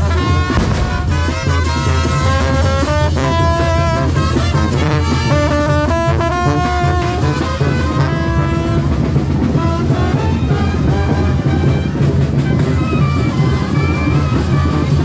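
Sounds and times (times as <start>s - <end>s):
bass drum: 0.0s - 3.9s
brass band playing: 0.0s - 15.0s.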